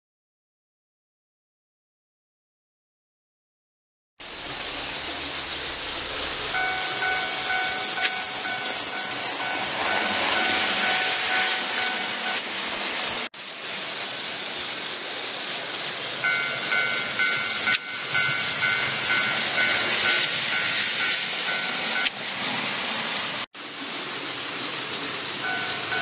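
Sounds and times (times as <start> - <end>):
steady hiss: 4.2 - 26.0
level crossing warning bell tone: 6.5 - 12.9, 16.2 - 22.3, 25.4 - 26.0.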